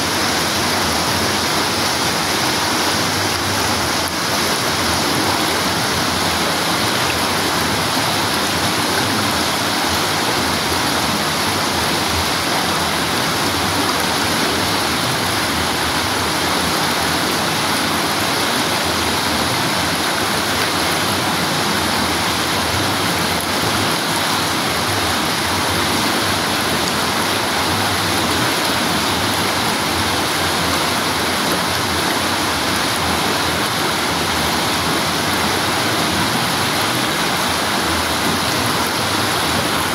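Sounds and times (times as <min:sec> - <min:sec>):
water rushing over rocks: 0:00.0 - 0:39.9.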